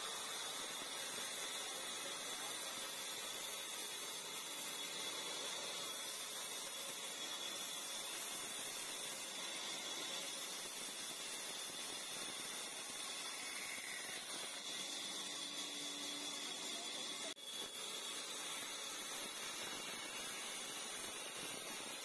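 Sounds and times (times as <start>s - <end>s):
high-pitched saw whine: 0.0s - 22.0s
bandsaw rasping through wood: 4.6s - 22.0s.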